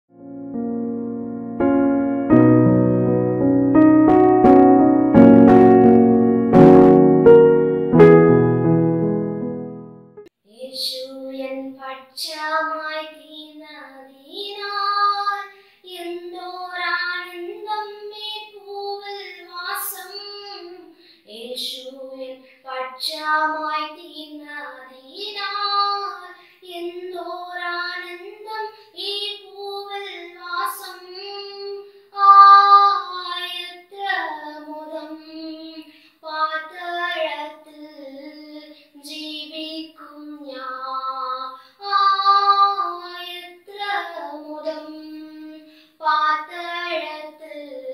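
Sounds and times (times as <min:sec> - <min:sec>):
girl singing unaccompanied: 0:10.4 - 0:47.9.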